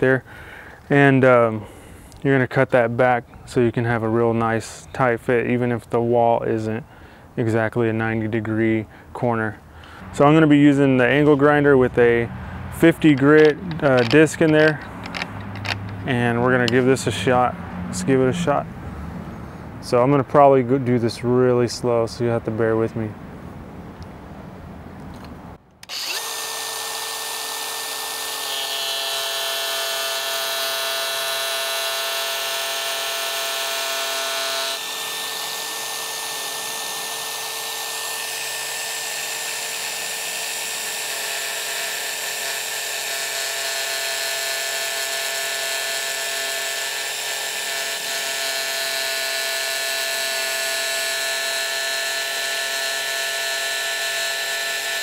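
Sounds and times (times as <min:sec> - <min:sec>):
angle grinder whining: 0:09.8 - 0:18.5, 0:25.8 - 0:55.0.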